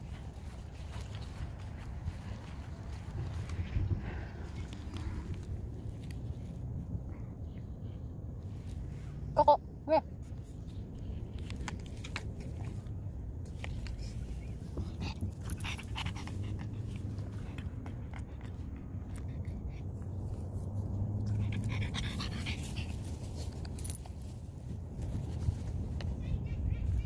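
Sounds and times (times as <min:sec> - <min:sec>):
dog panting: 0:14.0 - 0:23.6.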